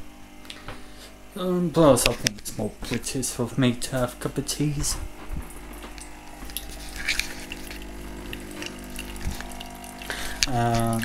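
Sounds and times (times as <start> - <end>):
pod machine pump humming: 0.0 - 11.0
water running into cup: 5.1 - 11.0.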